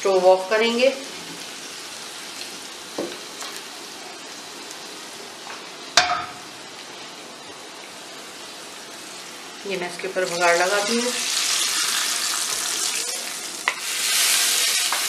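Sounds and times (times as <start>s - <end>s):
spices sizzling in hot ghee: 0.0s - 15.0s
cookware knocking on stove: 6.0s - 6.4s.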